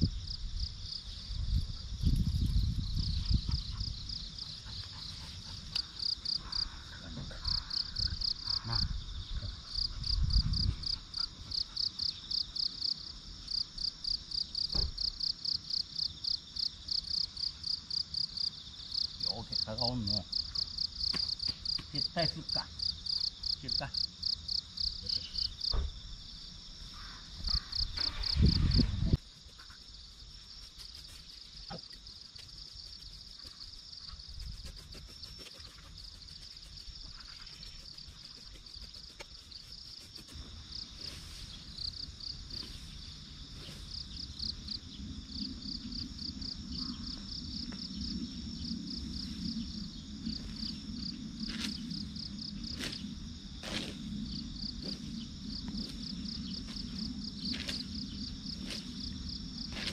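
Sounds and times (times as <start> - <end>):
insects chirping: 0.0 - 59.9.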